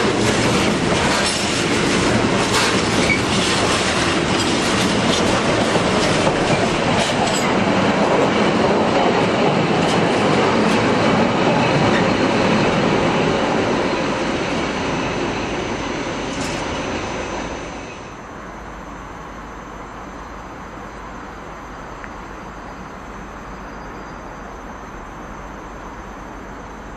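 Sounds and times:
wheels clicking over rail joints: 0:00.0 - 0:13.1
freight train rolling past: 0:00.0 - 0:26.9.

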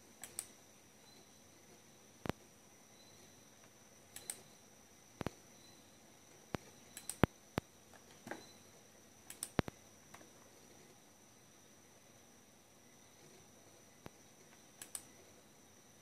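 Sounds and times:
faint high whine: 0:00.0 - 0:16.0
mouse button clicking: 0:04.2 - 0:04.5.

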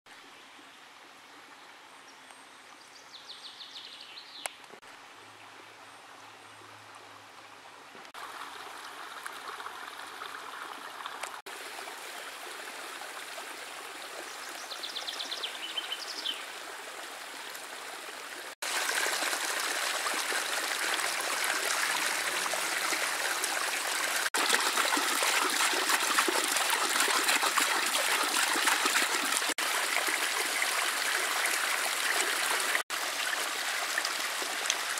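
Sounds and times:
creek trickling over gravel: 0:06.1 - 0:34.9
water splashing on paddle wheel: 0:23.4 - 0:30.6.

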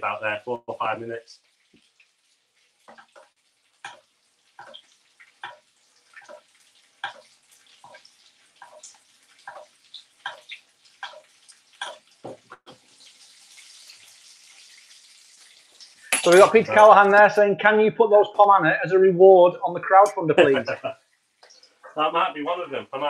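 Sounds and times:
hot fat spitting in frying pan: 0:01.3 - 0:16.8, 0:20.8 - 0:21.9
spoon tapping pan: 0:02.9 - 0:08.0, 0:08.6 - 0:12.9, 0:16.1 - 0:16.7.

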